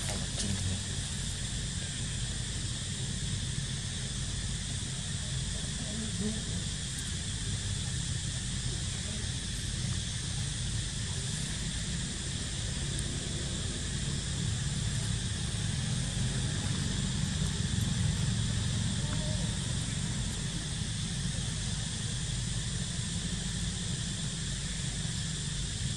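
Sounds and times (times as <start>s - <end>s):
high insect drone: 0.0s - 25.9s.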